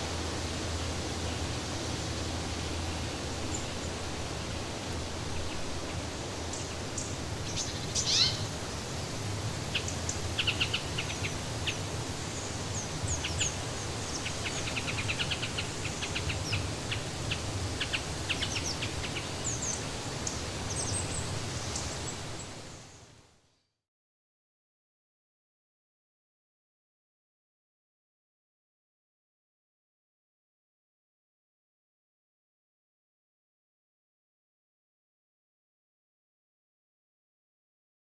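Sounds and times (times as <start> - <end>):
steady outdoor hiss: 0.0 - 23.8
birds chirping: 1.1 - 23.0.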